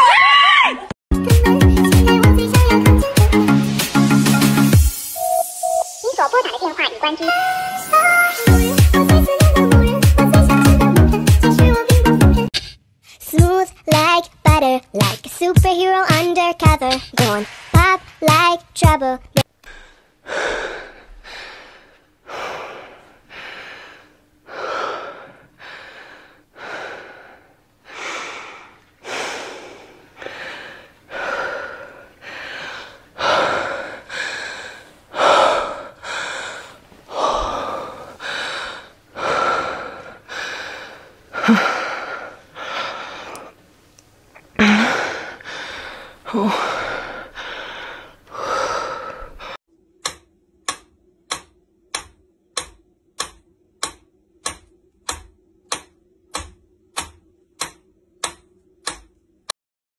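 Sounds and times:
person gasping breaths: 19.6s - 43.6s, 44.4s - 49.6s.

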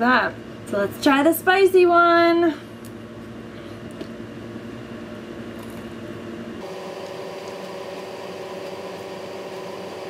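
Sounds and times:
steady hum with tones: 0.0s - 10.0s.

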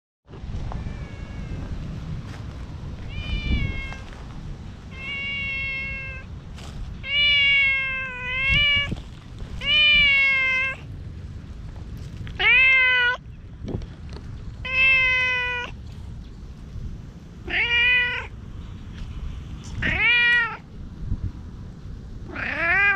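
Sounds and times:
cat meowing: 0.7s - 1.7s, 3.0s - 4.1s, 4.9s - 6.3s, 7.0s - 9.0s, 9.6s - 10.9s, 12.4s - 13.2s, 14.6s - 15.8s, 17.4s - 18.3s, 19.7s - 20.6s, 22.3s - 22.9s.

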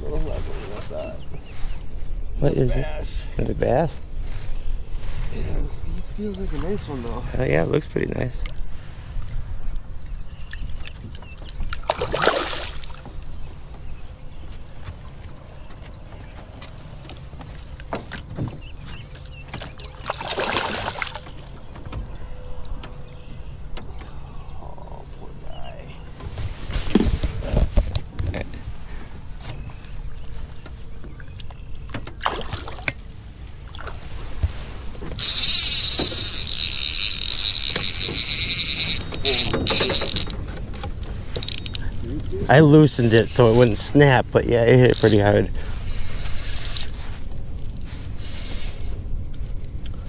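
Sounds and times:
fish splashing at surface: 20.0s - 21.3s
fishing reel drag buzzing: 35.2s - 40.4s, 41.3s - 42.0s.

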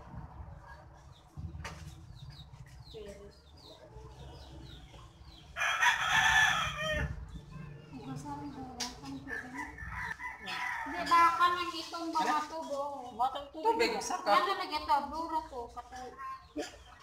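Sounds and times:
rooster crowing: 5.6s - 7.2s, 9.3s - 11.1s.

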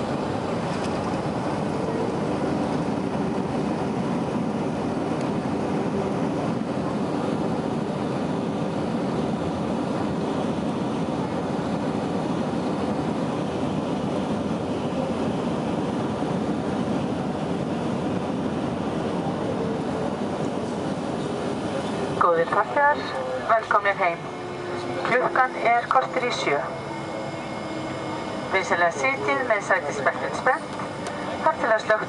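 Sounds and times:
airplane cabin engine rumble: 0.0s - 32.0s
faint steady tone: 21.8s - 32.0s.

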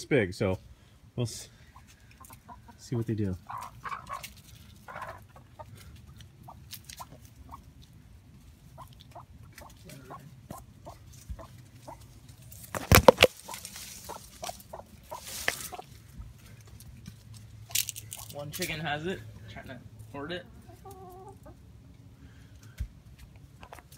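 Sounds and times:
chickens clucking: 1.6s - 18.4s, 19.9s - 22.1s.

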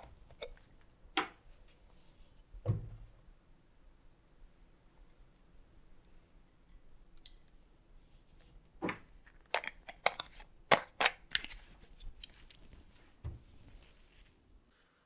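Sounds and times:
plastic bottle clicks and crackles: 8.9s - 12.6s.

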